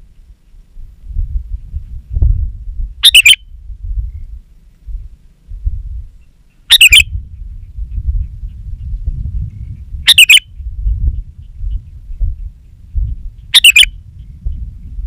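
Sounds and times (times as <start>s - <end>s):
low rumble: 0.0s - 6.2s, 7.0s - 15.0s
bird calling: 3.0s - 3.4s, 6.2s - 7.8s, 9.5s - 10.7s, 11.4s - 14.4s.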